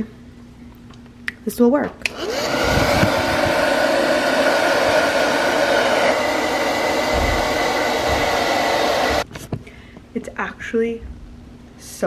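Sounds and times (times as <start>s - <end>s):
hair dryer running: 2.0s - 9.3s.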